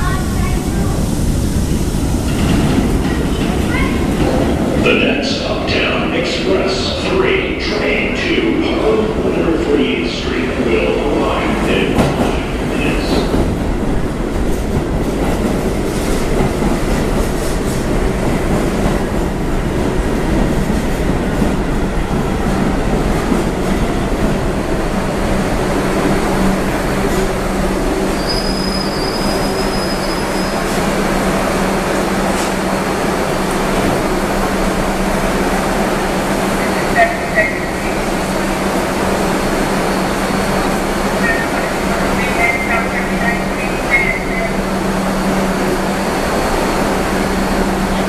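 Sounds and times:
train wheels rumbling on rails: 0.0 - 48.0
high brake squeal: 28.2 - 30.7.

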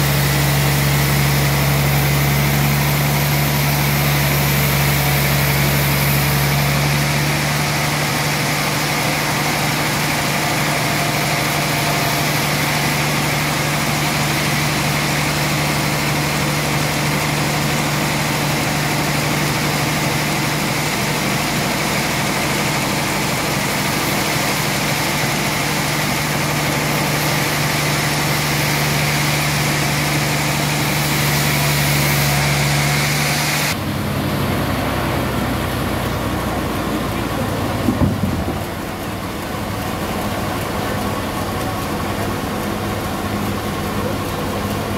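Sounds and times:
saw blade hissing through wood: 0.0 - 19.7, 23.6 - 33.8
sawmill machine hum: 0.0 - 44.9.

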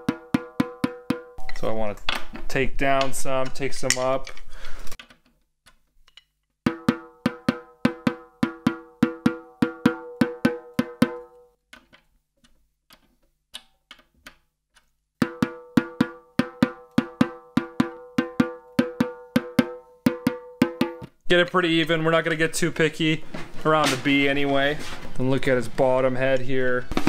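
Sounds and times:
drumstick tapping snare drum: 0.0 - 1.4, 6.7 - 11.4, 15.2 - 21.5.

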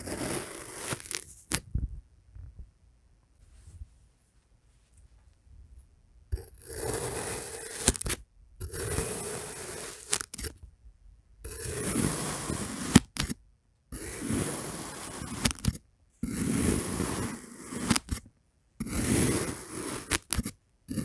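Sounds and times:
knife cutting through sand: 0.0 - 1.6, 6.4 - 10.6, 11.5 - 13.4, 14.0 - 18.2, 18.8 - 21.0.

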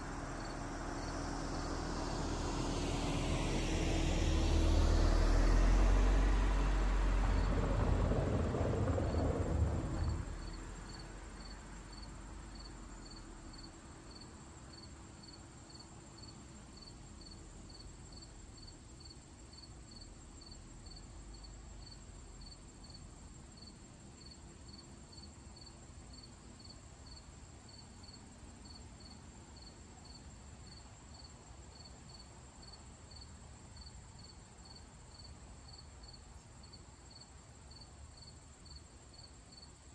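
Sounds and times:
faint high whine: 0.0 - 7.5
car driving past: 0.0 - 14.2
insect chirping: 0.1 - 2.7, 10.0 - 39.9.

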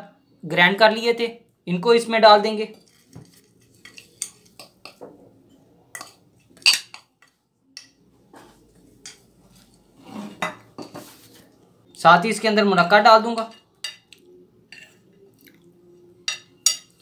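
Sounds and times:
crockery clinking: 2.7 - 8.0, 10.2 - 11.1, 13.3 - 15.2, 16.0 - 17.0
spoon scraping ceramic bowl: 2.7 - 8.0, 8.8 - 11.2, 13.4 - 15.1.

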